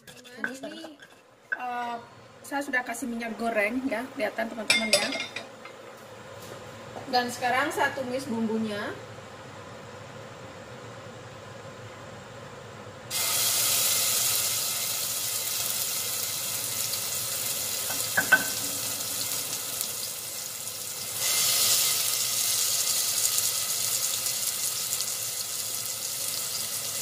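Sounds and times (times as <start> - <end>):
paste sizzling in hot oil: 13.1 - 27.0.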